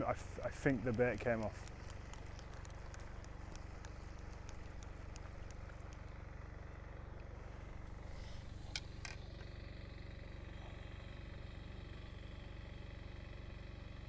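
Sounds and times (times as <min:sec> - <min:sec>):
low mechanical hum: 0:00.0 - 0:14.0
faint ticks: 0:00.4 - 0:06.6.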